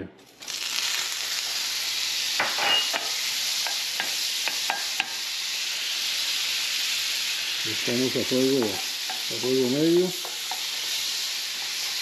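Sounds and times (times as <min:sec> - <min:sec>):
butter sizzling in frying pan: 0:00.3 - 0:12.0
spatula tapping and scraping pan: 0:02.4 - 0:05.2, 0:08.6 - 0:09.3, 0:10.2 - 0:10.7.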